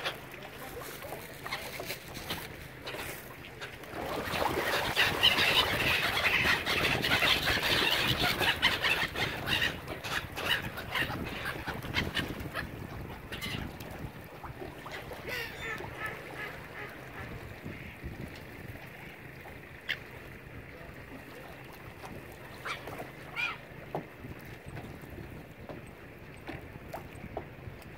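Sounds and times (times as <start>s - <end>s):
waterfowl calling: 0.0s - 0.7s, 2.7s - 14.0s, 14.6s - 18.2s, 18.8s - 21.6s, 22.3s - 23.9s.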